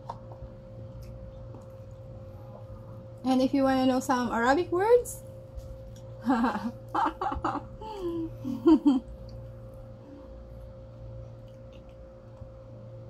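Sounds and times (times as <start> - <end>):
faint steady hum: 0.0 - 13.0
person laughing: 6.2 - 9.2.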